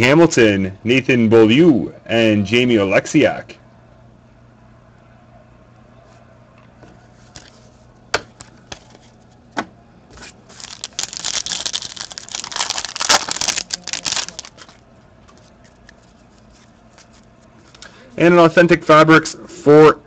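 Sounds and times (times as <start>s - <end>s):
foil pack tearing and crinkling: 10.2s - 14.8s.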